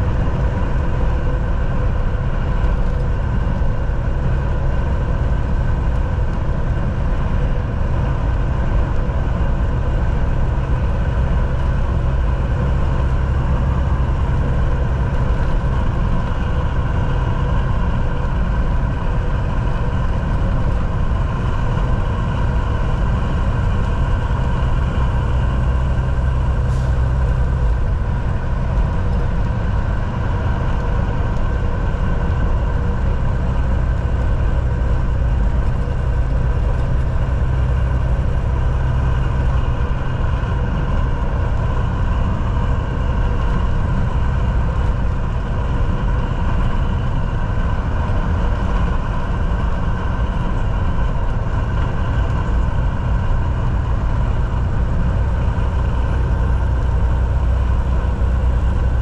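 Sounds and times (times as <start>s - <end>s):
diesel engine running: 0.0s - 59.0s
road noise: 0.0s - 59.0s.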